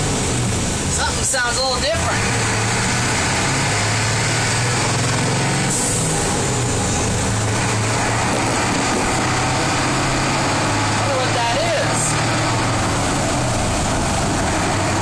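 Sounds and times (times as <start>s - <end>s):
diesel engine hum: 0.0s - 15.0s.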